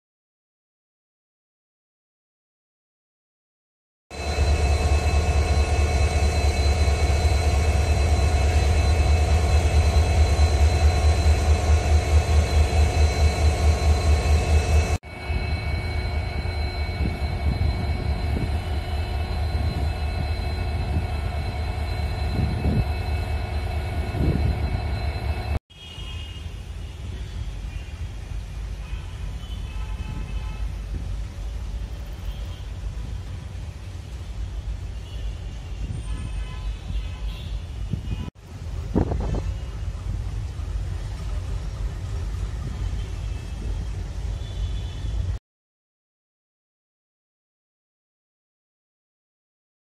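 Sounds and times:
diesel locomotive engines idling: 0:04.1 - 0:25.6, 0:37.6 - 0:45.4.

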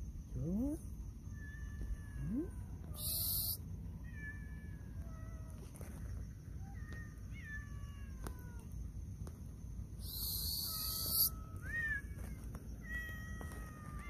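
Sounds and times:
cats meowing: 0:01.3 - 0:05.9, 0:06.6 - 0:08.8, 0:10.1 - 0:14.0.

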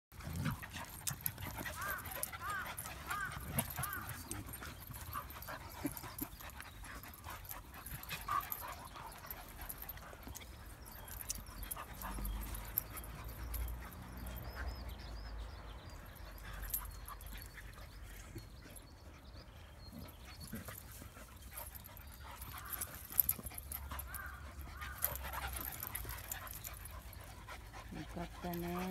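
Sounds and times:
dogs panting: 0:00.1 - 0:28.9.

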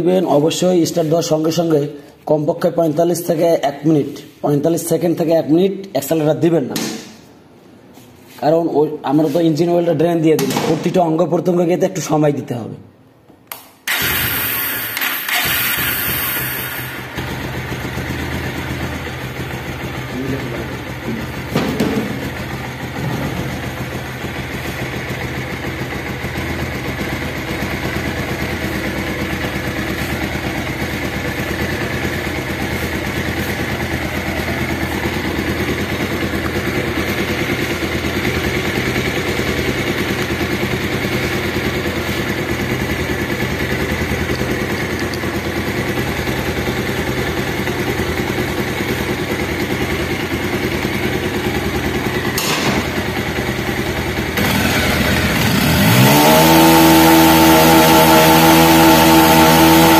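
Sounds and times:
click: 0:13.4 - 0:13.7
motorcycle engine idling and revving: 0:13.9 - 0:59.9.

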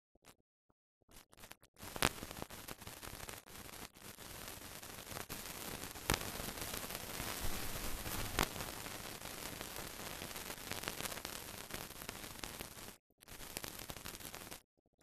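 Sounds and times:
film surface hiss and crackles: 0:01.8 - 0:14.6
loud pops: 0:06.0 - 0:09.7.

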